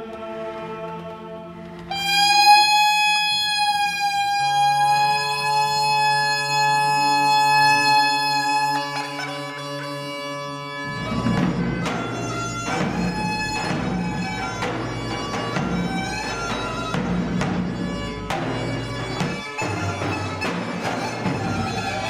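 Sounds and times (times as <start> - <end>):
bagpipe playing: 1.8 - 22.0
heavy drum beats: 10.9 - 22.0.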